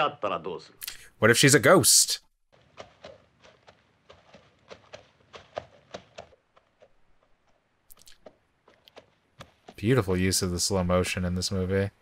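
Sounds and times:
faint slow footsteps: 0:02.5 - 0:10.6.

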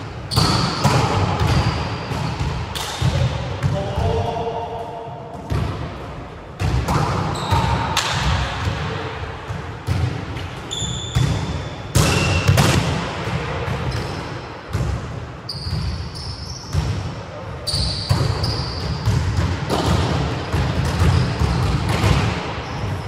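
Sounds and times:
volleyball slaps and bounces: 0:00.0 - 0:16.0, 0:17.9 - 0:23.0
shoe squeaks: 0:07.3 - 0:07.7, 0:10.7 - 0:11.2, 0:15.5 - 0:16.8, 0:17.6 - 0:19.1.

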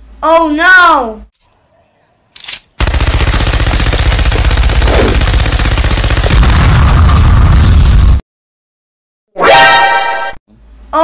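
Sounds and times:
cartoon machine-gun fire: 0:02.8 - 0:07.9
deep explosion rumble: 0:06.3 - 0:08.2.

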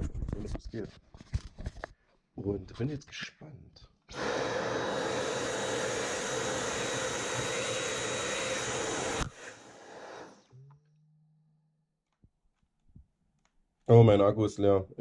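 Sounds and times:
vacuum cleaner running: 0:04.1 - 0:10.5.

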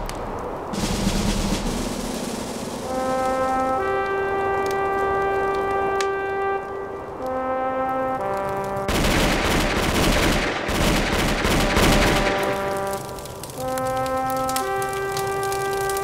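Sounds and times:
slow background music: 0:01.4 - 0:09.4, 0:11.5 - 0:16.0.

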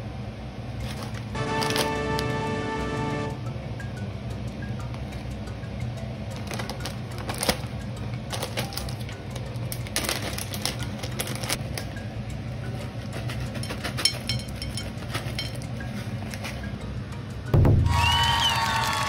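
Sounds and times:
low steady hum: 0:00.0 - 0:18.3
plastic pouch tearing and crinkling: 0:00.9 - 0:01.9, 0:06.4 - 0:07.7, 0:08.3 - 0:09.0, 0:09.7 - 0:11.6
snack pieces crackling: 0:06.4 - 0:11.9.

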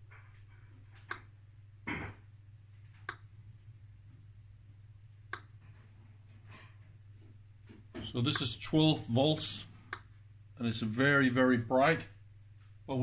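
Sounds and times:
steady low hum: 0:00.0 - 0:13.0
geiger counter clicks: 0:03.0 - 0:03.3, 0:08.2 - 0:08.6.

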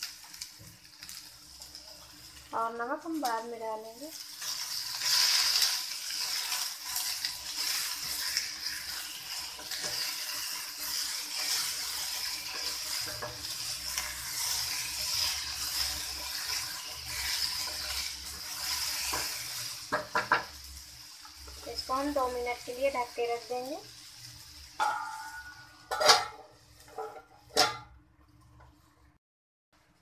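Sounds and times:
vegetables sizzling in oil: 0:00.0 - 0:29.0
spatula scraping a pan: 0:04.2 - 0:20.5, 0:24.8 - 0:27.9.

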